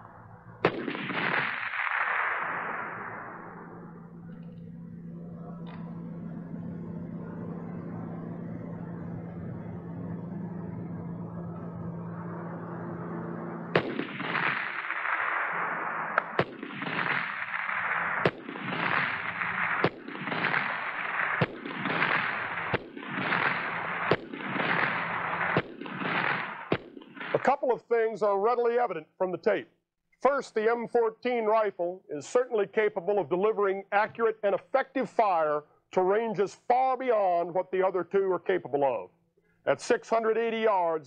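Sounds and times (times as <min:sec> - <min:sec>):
rifle shots with long echo: 0:00.0 - 0:10.0, 0:11.2 - 0:27.7
steady low hum: 0:00.0 - 0:41.0.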